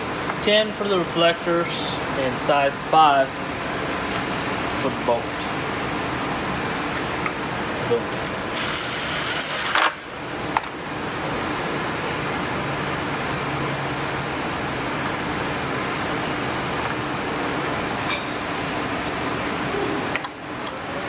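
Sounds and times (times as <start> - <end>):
steady room hum: 0.0 - 21.0
cordless driver running: 8.2 - 10.0.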